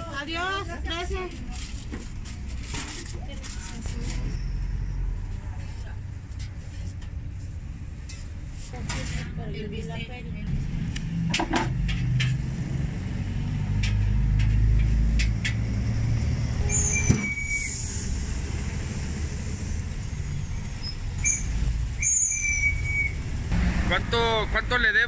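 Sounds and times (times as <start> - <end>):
heavy vehicle engine rumbling past: 9.2 - 25.0
brief high squeals: 16.6 - 18.0, 20.2 - 23.2.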